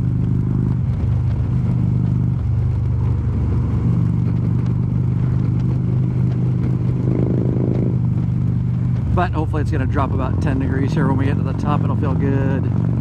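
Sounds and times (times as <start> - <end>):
motorcycle engine cruising: 0.0 - 13.0
wind and road noise: 0.0 - 13.0.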